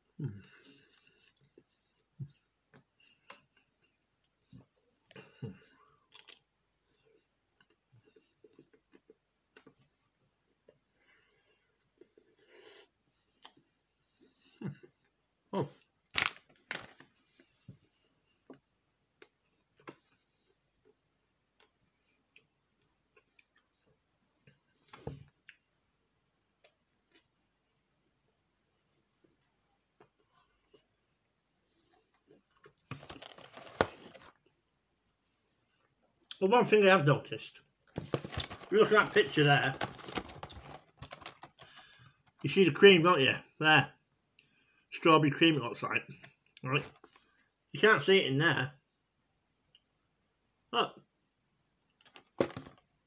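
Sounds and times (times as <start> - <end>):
eating ice cream bar crunches: 6.1 - 6.4.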